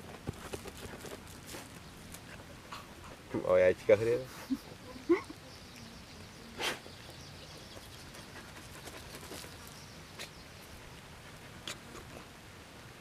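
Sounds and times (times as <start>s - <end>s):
loud puff: 6.6s - 6.8s
dog sniffing: 7.7s - 10.4s.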